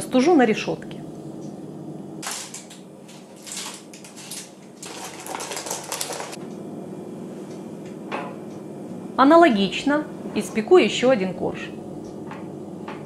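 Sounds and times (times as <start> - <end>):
baking parchment crinkling: 2.2 - 6.4.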